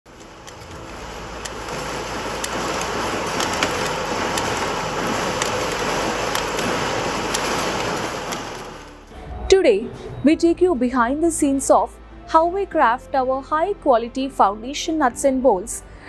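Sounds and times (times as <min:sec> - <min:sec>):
assembly machine mechanical din: 0:00.1 - 0:09.4.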